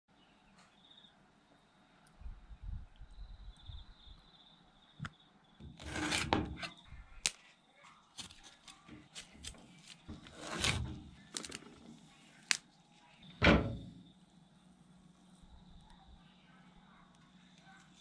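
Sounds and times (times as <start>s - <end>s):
knife cutting broccoli on board: 5.7s - 6.7s, 9.1s - 11.0s
thump on chopping board: 13.4s - 13.9s.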